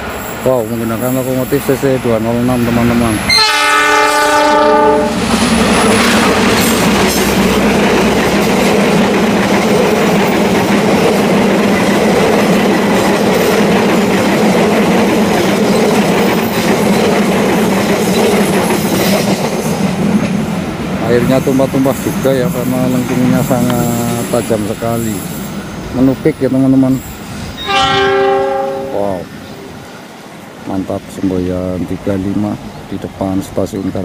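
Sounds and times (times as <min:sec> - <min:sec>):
train wheels rumbling on rails: 0:00.0 - 0:34.0
locomotive horn blast: 0:03.3 - 0:05.2, 0:27.6 - 0:29.2.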